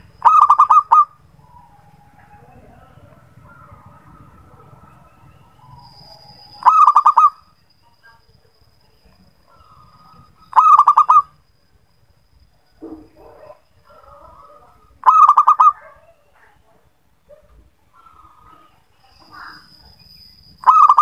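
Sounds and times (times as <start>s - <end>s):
faint birdsong: 0.0s - 21.0s
thin steady high tone: 0.0s - 21.0s
dove cooing: 0.1s - 7.4s, 9.6s - 11.4s, 13.2s - 16.4s, 20.6s - 21.0s.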